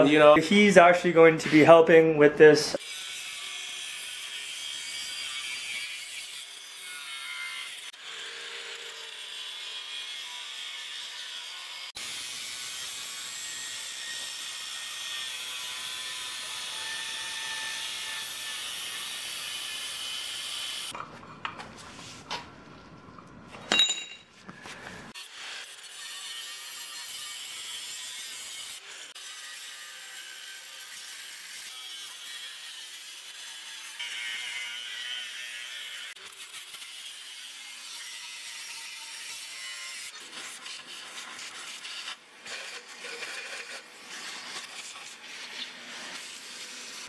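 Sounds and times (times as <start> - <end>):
angle grinder cutting metal: 2.7 - 21.0, 25.1 - 47.0
sharp ringing metal clank: 23.7 - 24.3.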